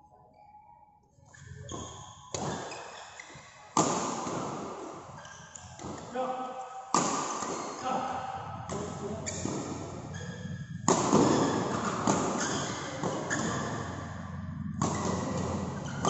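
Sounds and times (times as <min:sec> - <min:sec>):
rackets hitting shuttlecock: 0:03.8 - 0:04.9, 0:06.9 - 0:16.0.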